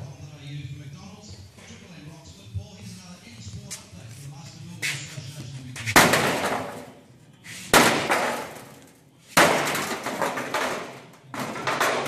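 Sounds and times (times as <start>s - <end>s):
sledgehammer striking sheet metal: 5.9s - 6.9s, 7.7s - 8.7s, 9.4s - 12.0s.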